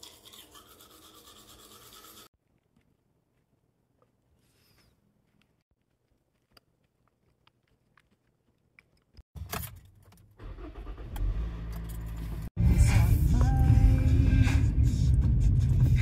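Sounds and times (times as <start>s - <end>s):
car engine starting and running: 9.4s - 16.0s.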